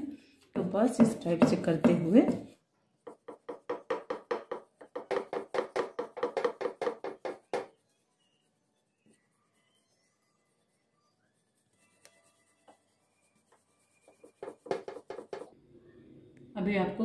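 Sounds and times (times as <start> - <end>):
rolling pin knocking on board: 1.0 - 2.5, 3.1 - 7.7, 14.4 - 15.5.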